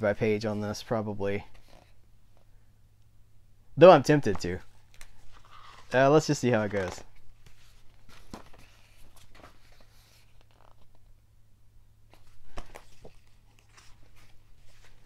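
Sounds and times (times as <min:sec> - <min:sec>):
book pages rustling: 0:01.4 - 0:02.5, 0:04.2 - 0:11.1, 0:12.1 - 0:15.0.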